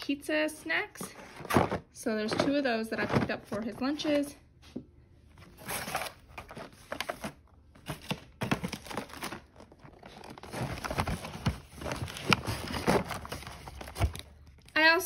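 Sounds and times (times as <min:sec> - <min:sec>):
packaging crinkling and rustling: 0:05.4 - 0:14.8.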